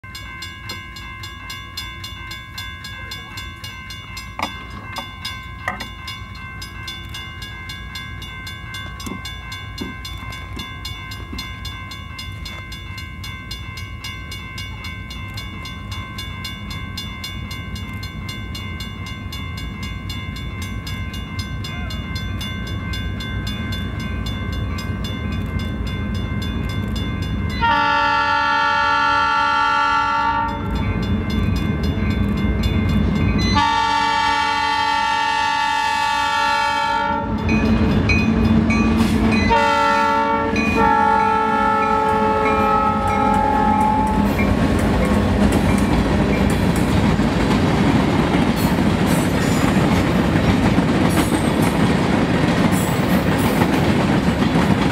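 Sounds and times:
diesel locomotive engine rumble: 0:00.2 - 0:54.9
locomotive air horn: 0:27.6 - 0:30.7, 0:33.6 - 0:37.4, 0:39.5 - 0:44.4.

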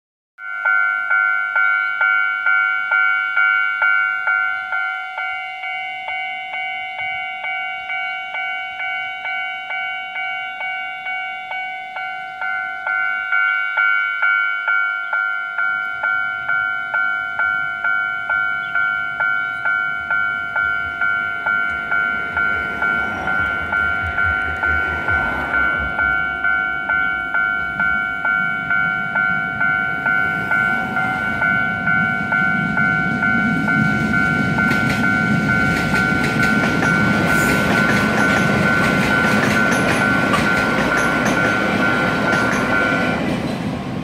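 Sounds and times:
level-crossing warning bell dinging: 0:00.4 - 0:44.0
low rumble: 0:21.7 - 0:29.6.

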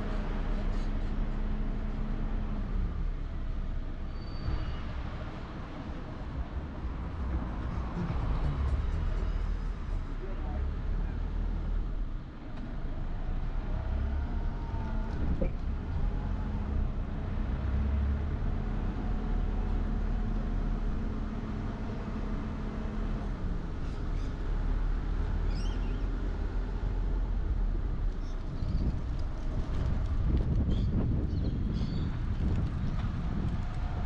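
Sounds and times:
car engine and tyre rumble: 0:00.0 - 0:34.0.

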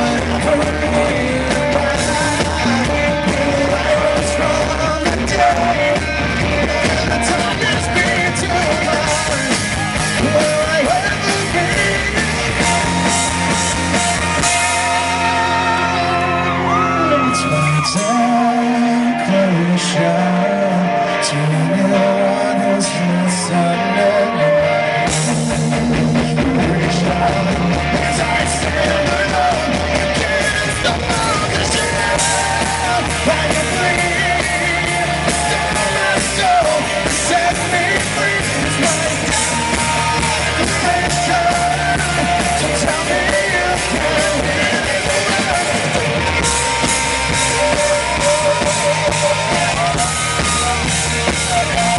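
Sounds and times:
drums and bass: 0:00.0 - 0:51.9
electric guitar: 0:00.0 - 0:51.9
live rock band: 0:00.0 - 0:51.9
man singing: 0:00.0 - 0:51.9.

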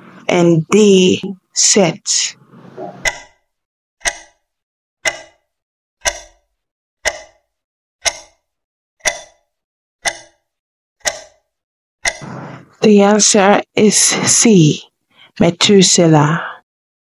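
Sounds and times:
clock ticking: 0:02.8 - 0:14.4.

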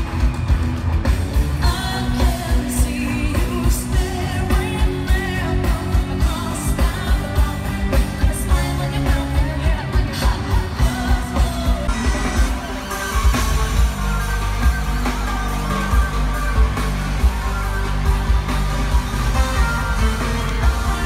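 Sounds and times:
person singing: 0:01.6 - 0:21.0
pulsing bass beat: 0:13.2 - 0:21.0.

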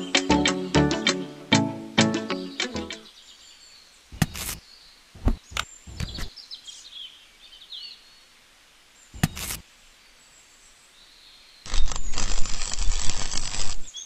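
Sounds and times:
faint bird chirps: 0:02.6 - 0:09.3.

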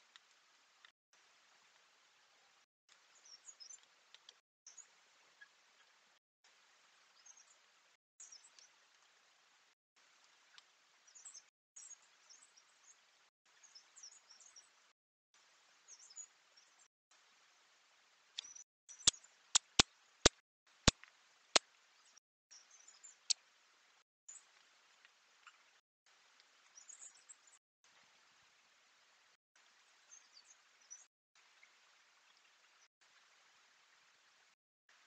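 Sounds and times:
faint woodland hiss: 0:00.0 - 0:14.8.

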